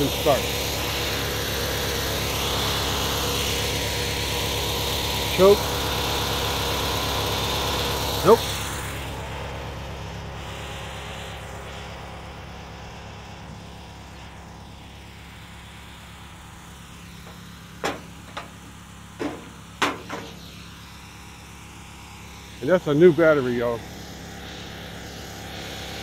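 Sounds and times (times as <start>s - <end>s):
tractor engine idling: 0.0s - 26.0s
sharp knocks: 17.3s - 20.4s.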